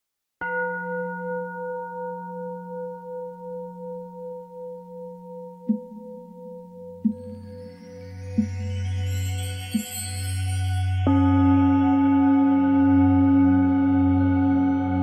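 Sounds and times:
singing bowl strike: 0:00.4 - 0:09.0
singing bowl ringing: 0:00.4 - 0:15.0.

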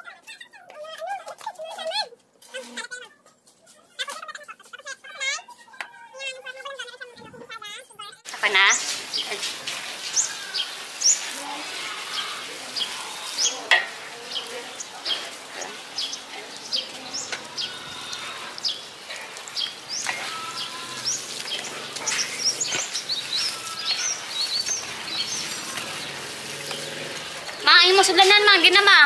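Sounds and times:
small birds chirping: 0:08.3 - 0:29.0
hands scraping in metal bowl: 0:08.8 - 0:27.7.

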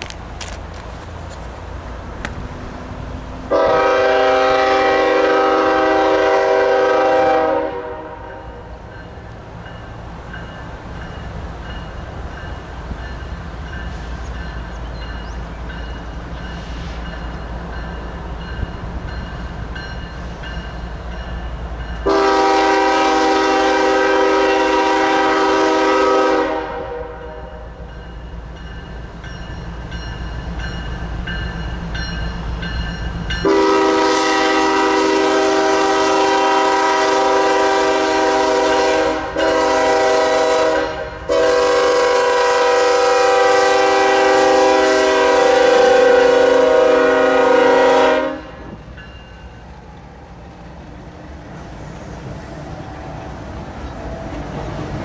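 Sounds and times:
locomotive rumble: 0:00.0 - 0:55.0
locomotive air horn blasts: 0:03.5 - 0:08.8, 0:22.0 - 0:27.8, 0:33.4 - 0:48.8.

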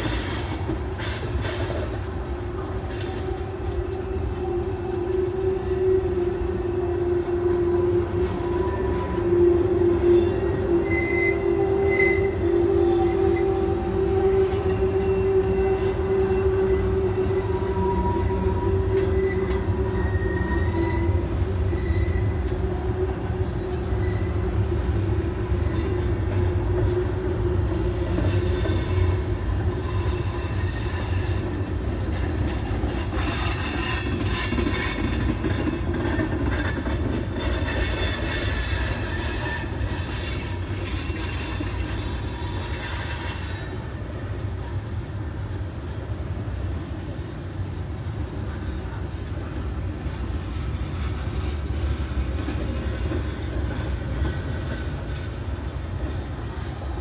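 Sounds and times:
freight train rumble: 0:00.0 - 0:57.0
high-pitched wheel squeal: 0:08.2 - 0:13.7, 0:14.4 - 0:22.5, 0:28.1 - 0:31.6, 0:32.9 - 0:43.8.

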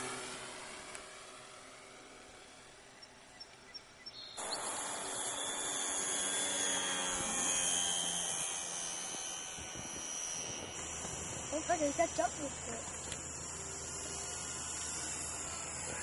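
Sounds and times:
model airplane motor whining: 0:00.0 - 0:03.7, 0:04.4 - 0:16.0.

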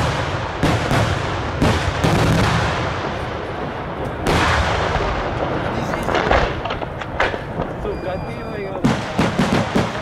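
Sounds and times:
fireworks bursting: 0:00.0 - 0:10.0
sharp fireworks bangs: 0:00.0 - 0:10.0
rumble of smaller reports: 0:05.1 - 0:10.0.

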